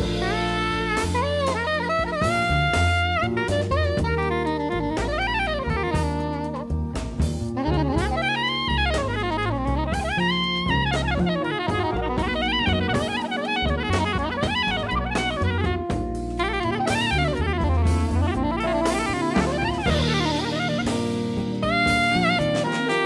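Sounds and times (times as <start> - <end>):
bass: 0.0 - 23.0
drum kit: 0.0 - 23.0
saxophone fast runs: 7.6 - 23.0.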